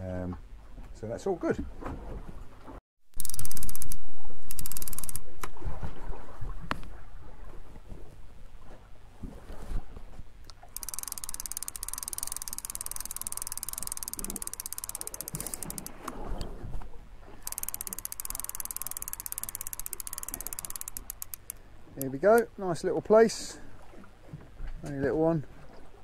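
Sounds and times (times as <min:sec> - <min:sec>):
fishing reel ticking: 0:03.2 - 0:05.3, 0:10.5 - 0:16.2, 0:17.4 - 0:22.5.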